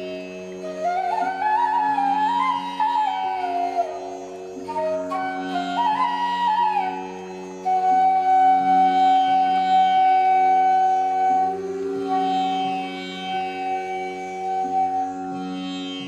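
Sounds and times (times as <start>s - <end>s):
flute melody: 0.0s - 16.0s.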